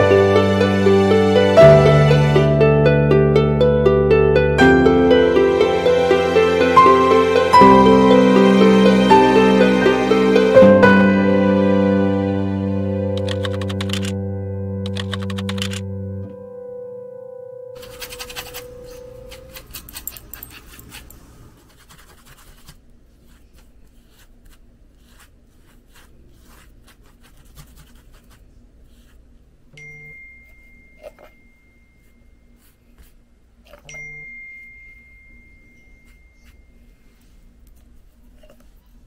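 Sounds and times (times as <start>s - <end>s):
paintbrush scratching on canvas: 17.8s - 29.3s
high bell-like chime: 29.8s - 32.6s, 33.9s - 37.2s.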